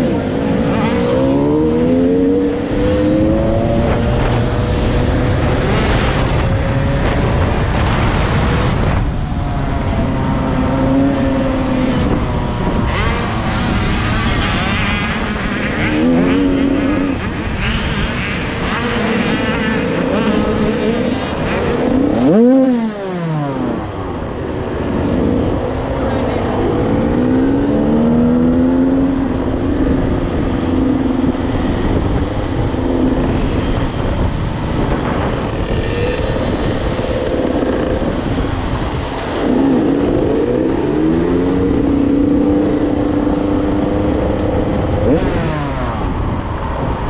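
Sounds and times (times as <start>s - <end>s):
dirt bike engine revving: 0.0s - 9.2s, 9.8s - 23.9s, 34.7s - 47.0s
wind rush: 0.0s - 47.0s.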